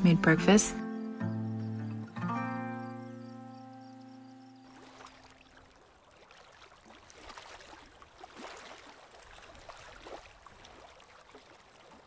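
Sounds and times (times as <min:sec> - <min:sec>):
lake water lapping on stones: 0:04.6 - 0:12.0.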